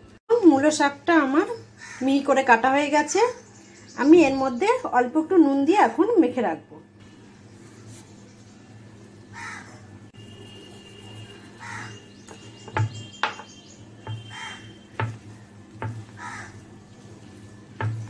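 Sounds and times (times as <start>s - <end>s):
bird calling: 11.1s - 16.8s.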